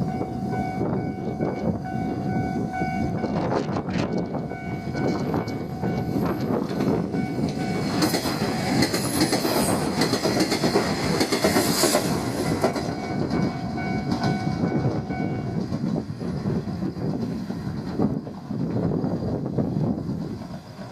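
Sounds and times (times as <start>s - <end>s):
crossing warning bell ringing: 0.0s - 8.2s, 12.7s - 15.6s
train engine running: 0.0s - 20.9s
train wheels clacking: 3.4s - 18.9s.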